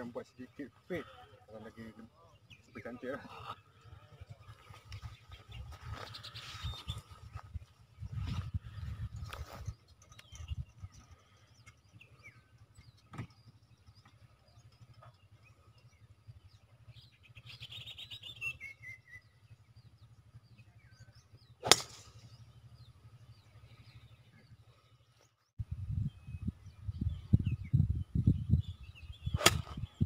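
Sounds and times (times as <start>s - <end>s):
birds chirping: 0.0s - 30.0s
golf club striking ball: 21.6s - 22.4s.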